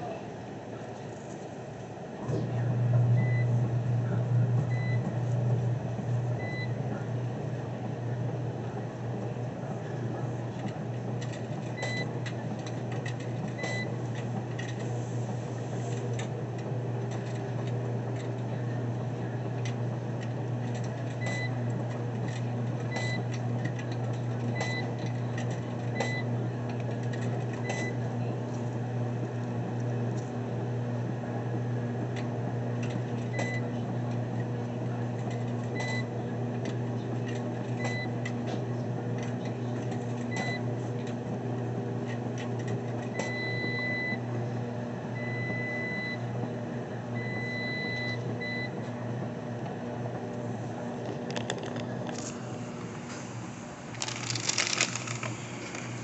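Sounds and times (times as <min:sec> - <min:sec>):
low electrical hum: 0:00.0 - 0:30.6, 0:43.0 - 0:56.0
washing machine beeps: 0:02.8 - 0:05.2, 0:06.3 - 0:06.9, 0:11.8 - 0:12.2, 0:13.6 - 0:14.0, 0:21.2 - 0:21.7, 0:22.9 - 0:23.4, 0:24.5 - 0:25.0, 0:25.9 - 0:26.4, 0:27.6 - 0:28.0, 0:33.3 - 0:33.7, 0:35.8 - 0:36.1, 0:37.8 - 0:38.2, 0:40.3 - 0:40.7, 0:43.1 - 0:44.3, 0:45.1 - 0:46.4, 0:47.2 - 0:48.8.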